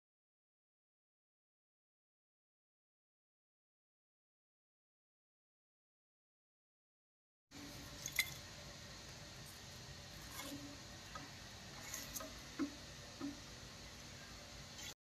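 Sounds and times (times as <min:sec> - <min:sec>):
faint steady hiss: 0:07.5 - 0:15.0.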